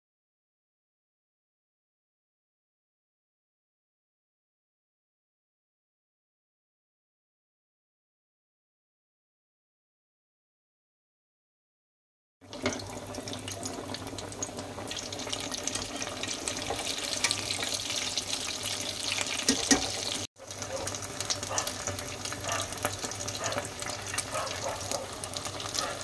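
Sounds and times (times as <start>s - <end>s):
patties deep-frying in hot oil: 12.4s - 26.0s.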